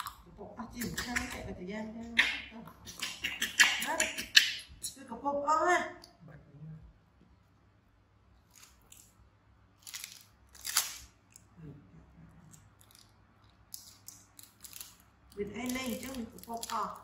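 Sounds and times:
plastic wrapping crinkling: 0:12.7 - 0:17.0.

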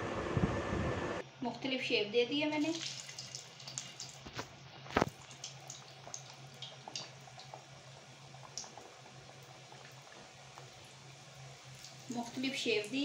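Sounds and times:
oil sizzling with pops: 0:02.6 - 0:13.0.

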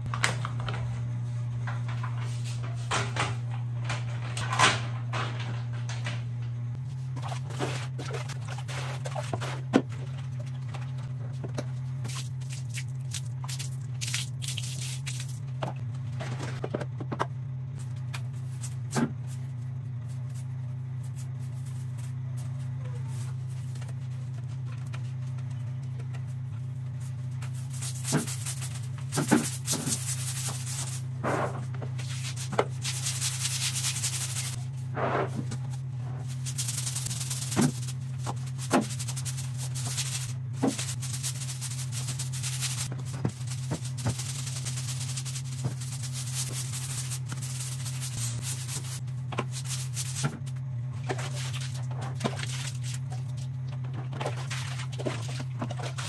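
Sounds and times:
steady low hum: 0:00.0 - 0:56.0
brush scrubbing tiles: 0:27.4 - 0:31.1, 0:31.9 - 0:50.4.

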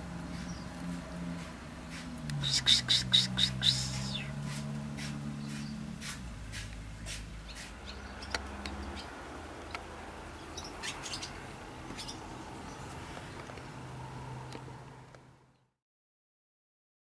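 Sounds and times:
swallows chirping: 0:02.4 - 0:04.4, 0:07.4 - 0:13.0.

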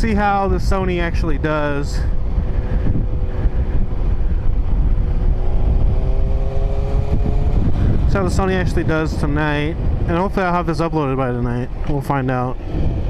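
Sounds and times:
wind rush on microphone: 0:00.0 - 0:13.0
motorcycle engine cruising: 0:01.4 - 0:10.2.

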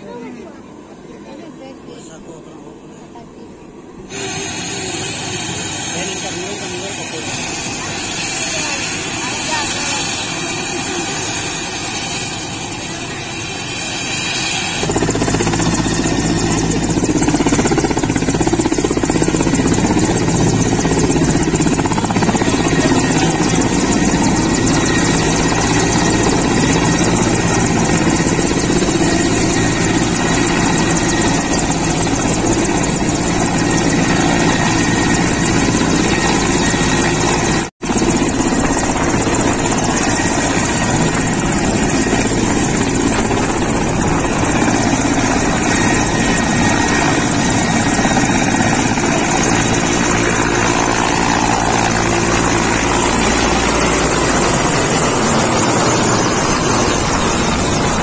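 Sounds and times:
helicopter rotor and turbine: 0:00.0 - 0:58.0.

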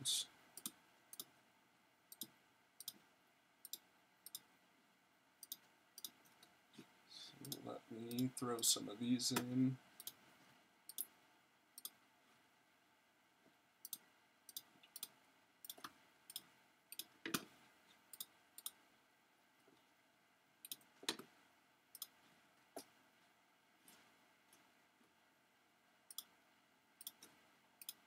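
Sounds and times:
computer mouse clicking: 0:00.6 - 0:01.3, 0:02.1 - 0:04.5, 0:05.4 - 0:06.6, 0:09.3 - 0:10.3, 0:10.9 - 0:11.2, 0:11.8 - 0:12.0, 0:13.8 - 0:17.5, 0:18.1 - 0:18.8, 0:20.6 - 0:21.3, 0:21.9 - 0:22.2, 0:26.1 - 0:26.4, 0:27.0 - 0:28.0.

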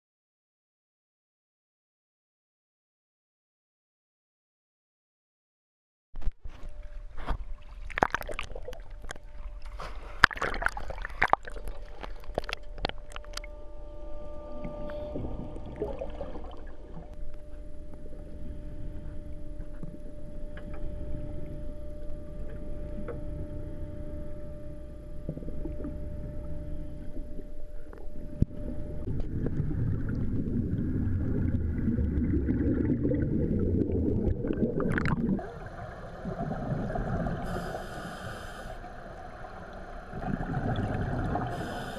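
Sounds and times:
water splashing against camera: 0:06.2 - 0:13.5
underwater hum: 0:06.2 - 0:41.9
air bubbles rushing: 0:07.7 - 0:09.2, 0:10.2 - 0:13.3, 0:15.2 - 0:17.2, 0:29.0 - 0:37.6, 0:40.1 - 0:41.6.

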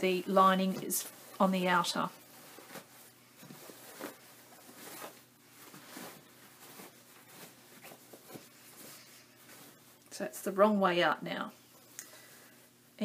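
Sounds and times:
fabric bag rustling: 0:00.0 - 0:10.0
small handling noises: 0:00.0 - 0:10.2.

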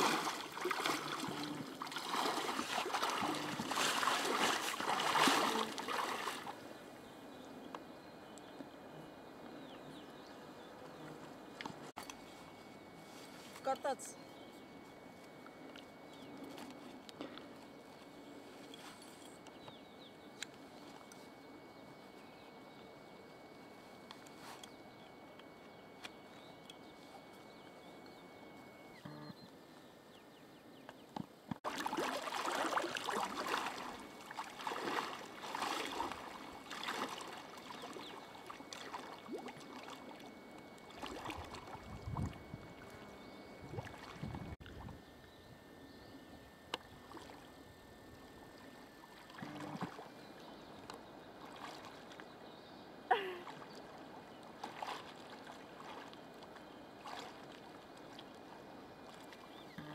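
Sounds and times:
water splashing around wading legs: 0:00.0 - 0:06.6, 0:31.6 - 0:43.0, 0:43.6 - 0:44.8, 0:51.4 - 0:52.2, 0:53.4 - 0:59.6
faint outdoor hiss: 0:00.0 - 0:59.9.

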